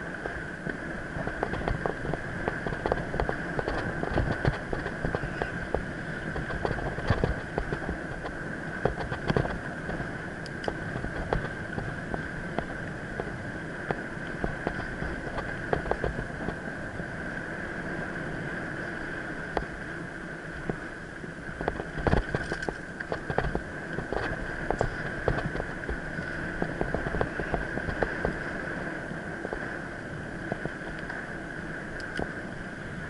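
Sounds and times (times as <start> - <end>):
bike rattling over bumps: 0.0 - 17.0, 21.5 - 28.6
bike tyres rolling on dirt: 0.0 - 33.0.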